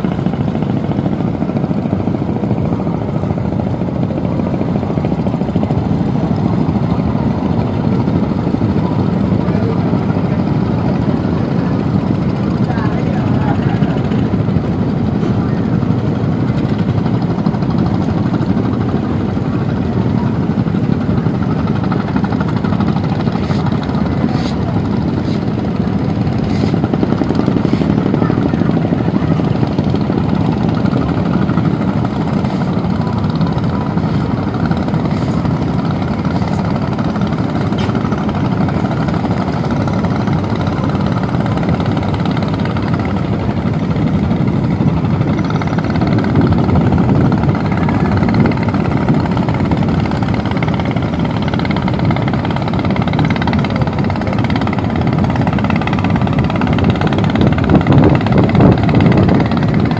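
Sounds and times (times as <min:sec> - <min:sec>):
boat engines droning: 0:00.0 - 0:59.9.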